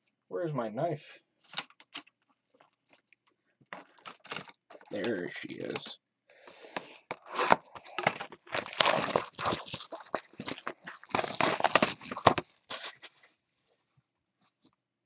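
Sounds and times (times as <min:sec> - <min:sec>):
plastic wrap crinkling: 0:01.5 - 0:03.1, 0:03.7 - 0:05.8, 0:06.5 - 0:13.2.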